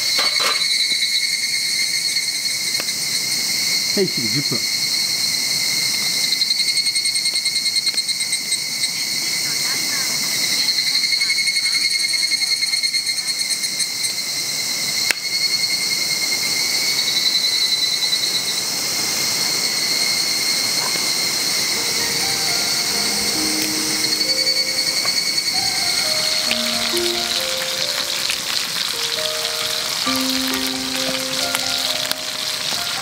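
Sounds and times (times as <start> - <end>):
insects chirring: 0.0 - 33.0
faint music: 21.6 - 33.0.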